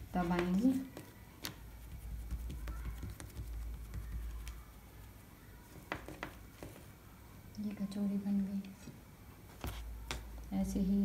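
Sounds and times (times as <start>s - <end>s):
hands tapping dough on wood: 0.2s - 4.6s, 5.8s - 6.8s.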